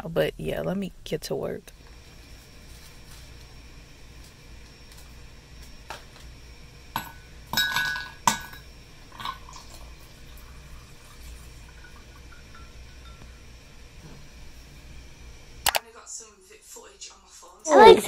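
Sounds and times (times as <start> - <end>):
ice cubes clinking in glass: 7.5 - 8.6
drink poured over ice: 9.1 - 12.6.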